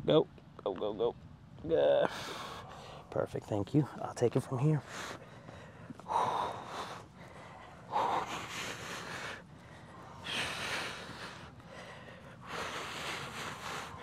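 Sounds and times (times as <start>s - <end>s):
man breathing heavily: 2.0s - 3.1s, 4.7s - 14.0s.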